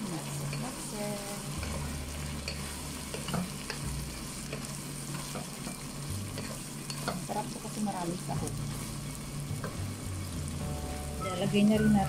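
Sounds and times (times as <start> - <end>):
vegetables sizzling in a pot: 0.0 - 12.0
spoon tapping and scraping a pot: 2.4 - 3.8, 4.4 - 7.3.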